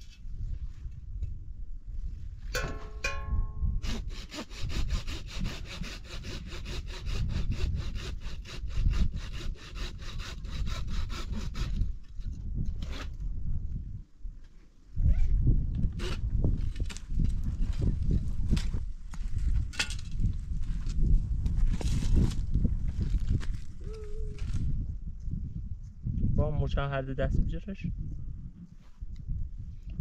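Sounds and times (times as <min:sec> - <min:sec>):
hand saw cutting wood: 0:03.8 - 0:12.0, 0:12.8 - 0:13.2.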